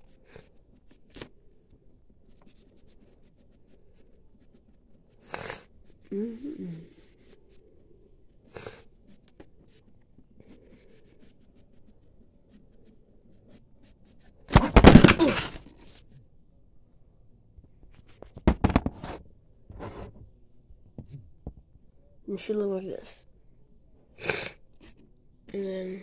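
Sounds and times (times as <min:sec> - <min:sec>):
pencil scribbling on paper: 0:02.1 - 0:06.1, 0:06.8 - 0:14.4.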